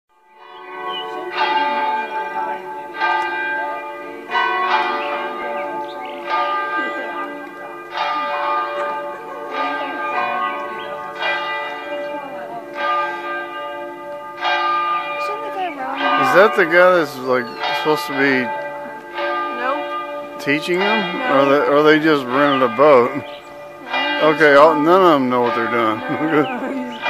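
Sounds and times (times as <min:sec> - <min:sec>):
church bell tolling: 0:00.2 - 0:27.0.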